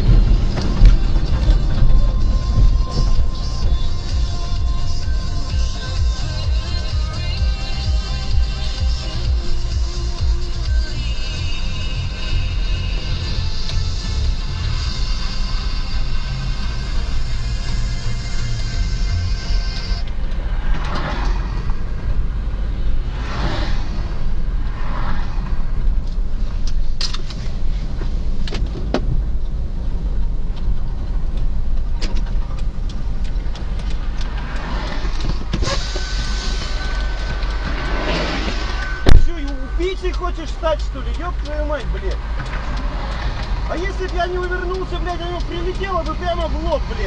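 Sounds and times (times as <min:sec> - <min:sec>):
music playing: 0:00.0 - 0:21.3, 0:32.8 - 0:47.0
car road and engine noise: 0:00.0 - 0:47.0
hissy noise: 0:34.0 - 0:41.0.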